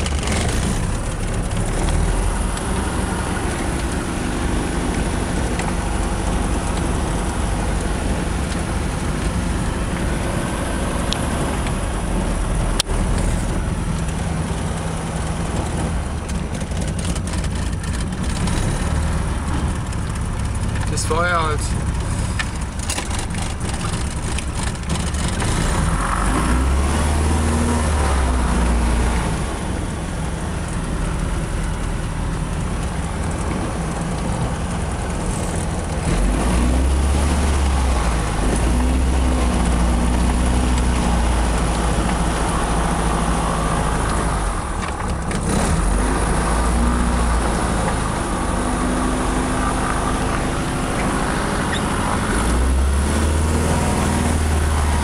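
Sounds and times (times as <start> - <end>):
aircraft engine running: 0.0 - 55.0.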